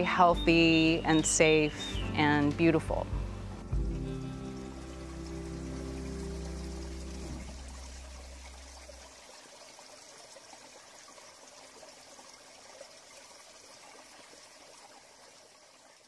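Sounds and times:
trickling running water: 0.0s - 16.0s
low music note: 2.4s - 9.0s.

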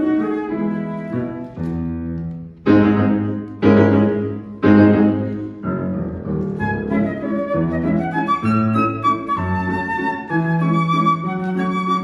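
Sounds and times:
grand piano waltz: 0.0s - 12.0s.

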